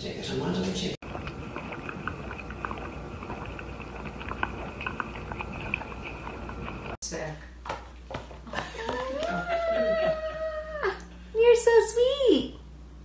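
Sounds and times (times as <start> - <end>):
puppy licking wetly: 1.0 - 7.0.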